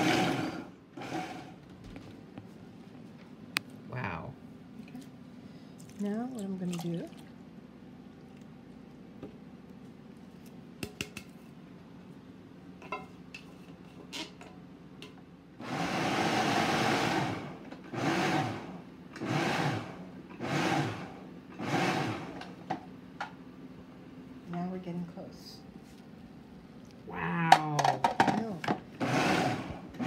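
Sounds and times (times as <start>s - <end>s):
food processor chopping: 0.0s - 1.6s, 15.6s - 22.5s, 29.0s - 30.0s.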